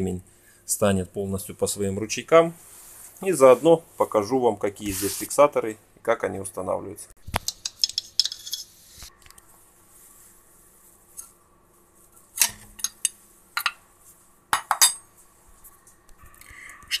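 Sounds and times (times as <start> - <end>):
small metal parts clinking: 7.6 - 8.7.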